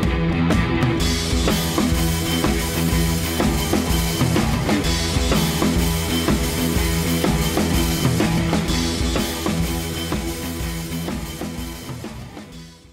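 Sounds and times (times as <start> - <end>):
music with drum beat: 0.0 - 12.9.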